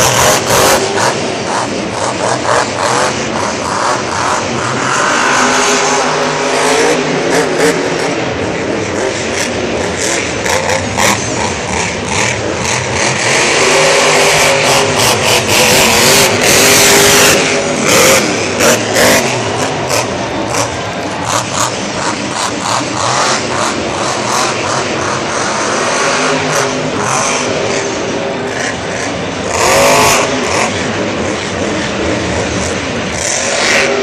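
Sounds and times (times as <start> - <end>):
monster truck engines revving: 0.0 - 34.0.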